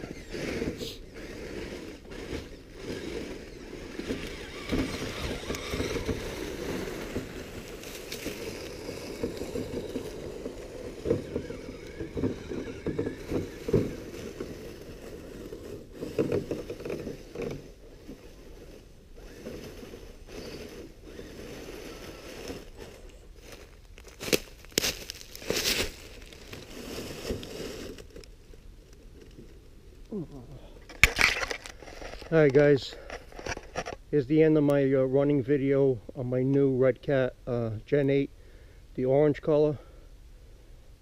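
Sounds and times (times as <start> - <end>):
toy truck motor rumble: 0.0 - 23.6
tyres crunching dry leaves: 0.0 - 29.4.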